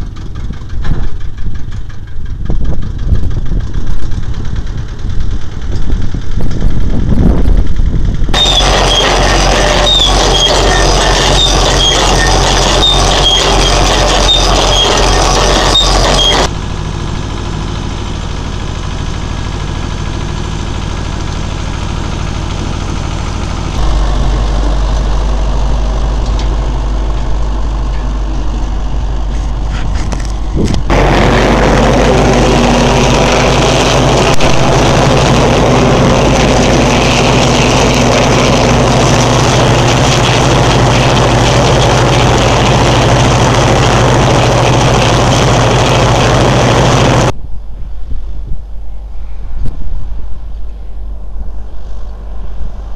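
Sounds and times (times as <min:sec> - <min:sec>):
soil rattling over digger: 0:00.0 - 0:47.4
tractor diesel engine running: 0:00.0 - 0:47.4
high squeaks: 0:08.4 - 0:16.5.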